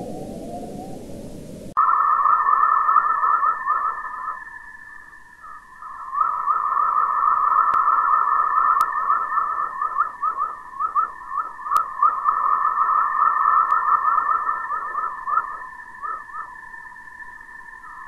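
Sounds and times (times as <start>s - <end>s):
faint hiss: 0.0s - 1.8s
short rising chirps: 0.0s - 18.0s
steady high tone: 0.0s - 18.0s.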